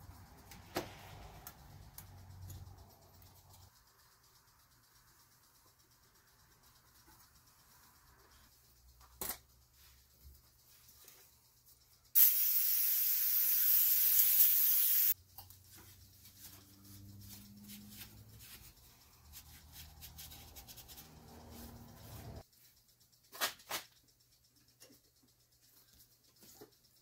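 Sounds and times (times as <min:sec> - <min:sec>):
aerosol spray can hissing: 0:12.2 - 0:15.2
rustling and handling noise: 0:15.2 - 0:24.0.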